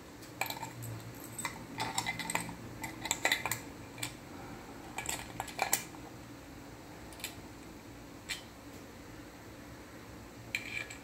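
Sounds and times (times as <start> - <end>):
metal dome clinking and rattling: 0.4 - 4.1.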